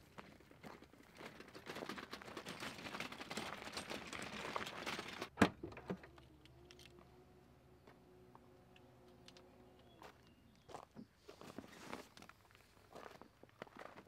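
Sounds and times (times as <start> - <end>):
wagon crunching over gravel: 0.0 - 5.3
footsteps on gravel: 10.0 - 14.0.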